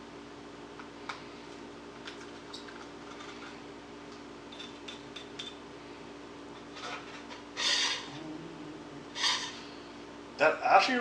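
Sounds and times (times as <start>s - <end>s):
low hum: 8.0s - 10.2s.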